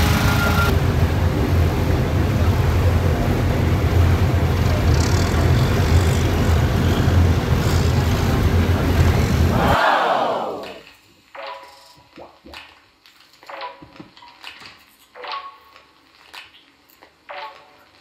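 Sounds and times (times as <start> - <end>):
boat engine low rumble: 0.1 - 9.5.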